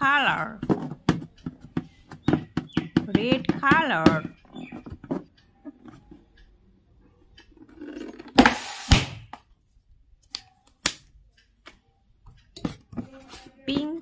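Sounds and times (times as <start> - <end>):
balloon bursting bang: 8.4 - 9.3.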